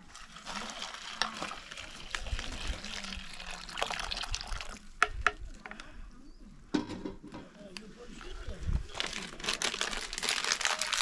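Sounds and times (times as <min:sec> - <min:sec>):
water pouring: 0:00.0 - 0:05.1.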